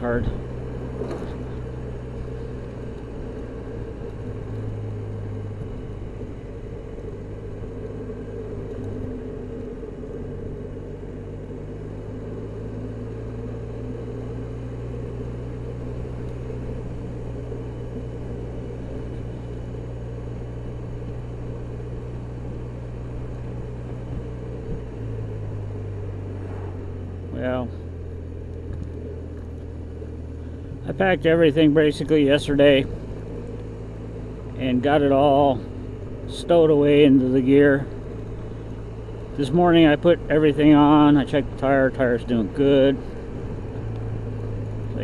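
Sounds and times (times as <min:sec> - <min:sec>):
road and wind noise: 0:00.0 - 0:45.0
scooter engine cruising: 0:00.0 - 0:45.0.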